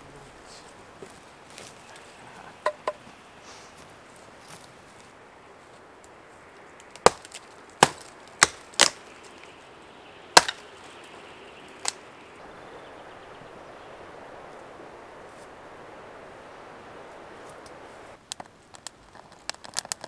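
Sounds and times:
dry branches snapping: 4.4 - 12.4, 16.7 - 20.0.

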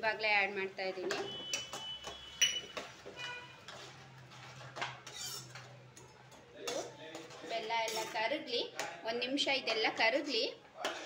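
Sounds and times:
spoon scraping a pan: 1.1 - 8.4.

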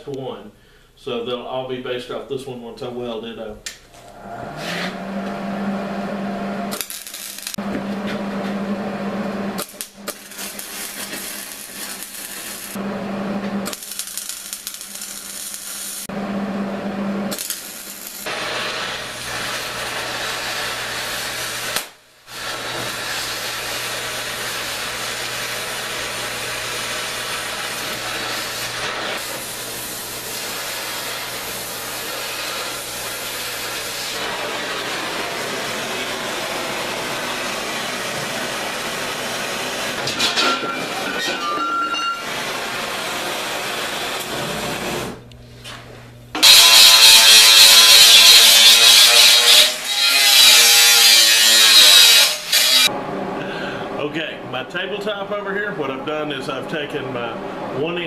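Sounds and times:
welding arc crackling and hissing: 6.7 - 7.6, 9.5 - 12.8, 13.5 - 16.1, 17.3 - 41.2, 42.0 - 45.2, 46.4 - 52.9.

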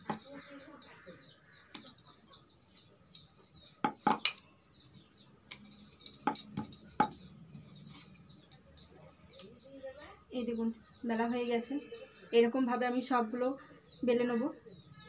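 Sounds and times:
bird chirping: 0.0 - 15.0
rolling pin knocking on wooden board: 3.8 - 4.3.

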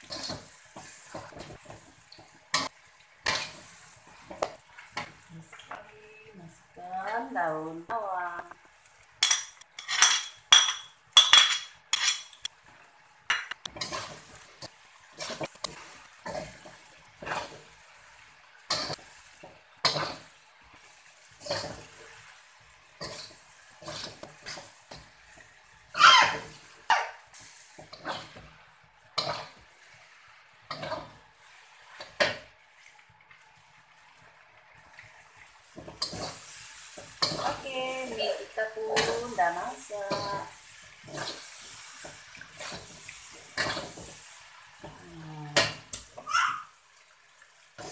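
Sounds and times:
wok ringing: 9.2 - 12.5.

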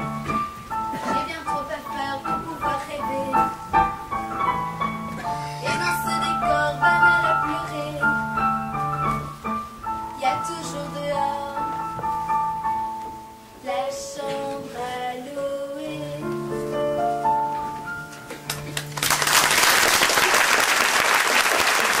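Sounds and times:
slow song with held notes: 0.0 - 19.1
audience applause: 18.5 - 22.0.

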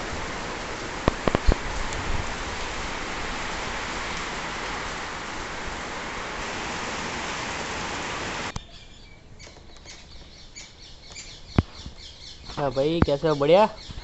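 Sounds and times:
heavy rain hissing: 0.0 - 8.5
small birds chirping: 8.3 - 14.0.

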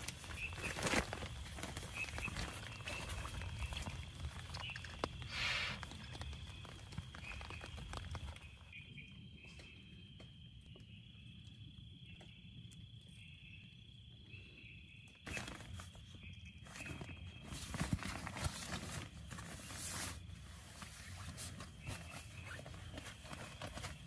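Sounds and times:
sleeping bag rustling: 0.0 - 8.7, 15.3 - 24.0
night insects chirring: 0.0 - 24.0.

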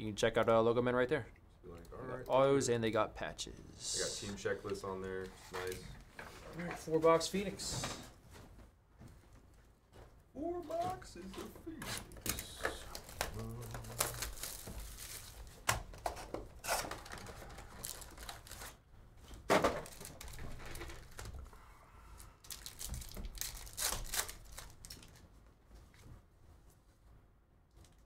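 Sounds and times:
foil packs crinkling and tearing: 11.9 - 15.7, 16.6 - 18.8, 19.7 - 21.3, 22.4 - 25.2.

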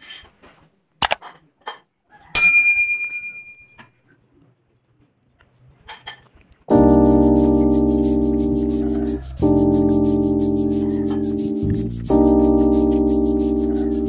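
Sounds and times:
utensil ringing on ceramic bowl: 2.4 - 3.6
piano music: 6.7 - 14.0.

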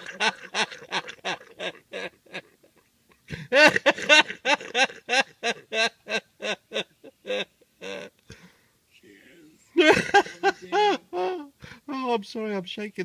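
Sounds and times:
man laughing: 0.0 - 8.1, 9.8 - 11.5.

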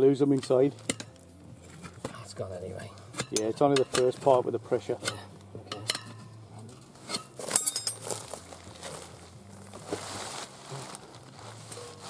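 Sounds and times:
sharp metallic clink: 7.1 - 8.1
wheel knocking and rubbing on tarp: 7.4 - 12.0.

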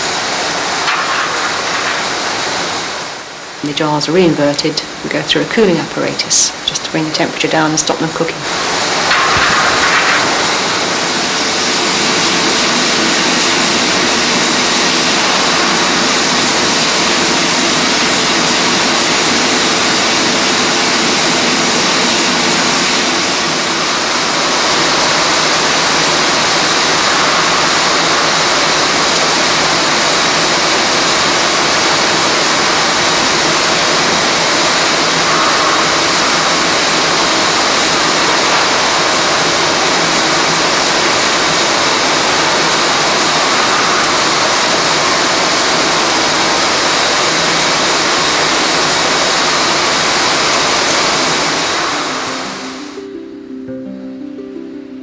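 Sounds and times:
factory machinery rushing hiss: 8.4 - 52.5.

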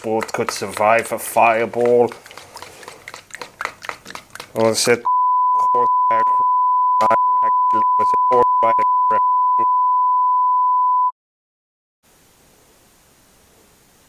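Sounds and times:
man speaking: 0.0 - 2.2, 4.6 - 9.8
censor bleep tone: 5.1 - 11.2
room hiss: 12.0 - 14.0.

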